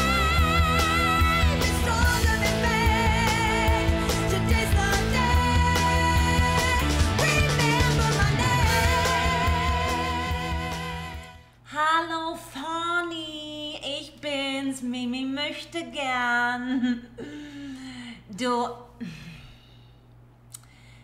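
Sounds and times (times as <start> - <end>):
pop music with singing: 0.0 - 11.5
woman singing unaccompanied: 0.0 - 16.7.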